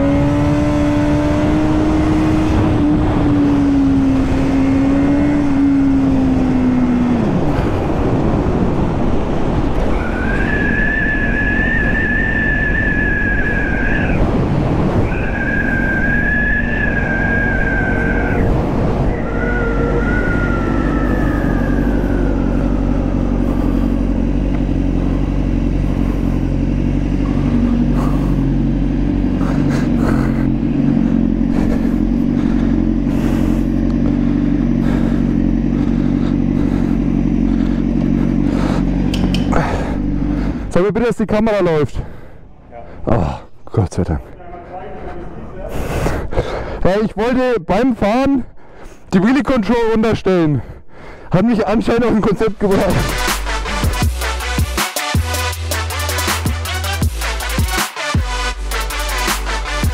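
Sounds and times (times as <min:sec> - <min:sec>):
wind rush: 0:00.0 - 0:25.2
motorcycle engine revving: 0:00.0 - 0:40.8, 0:52.6 - 0:59.9
high whine dropping in pitch: 0:08.3 - 0:29.8, 0:52.6 - 0:59.9.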